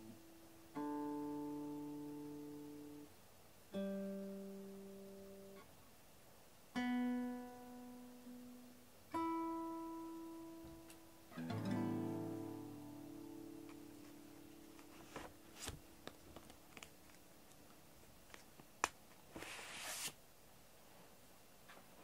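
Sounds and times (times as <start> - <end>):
slow acoustic guitar chords: 0.0 - 5.7, 6.7 - 16.0.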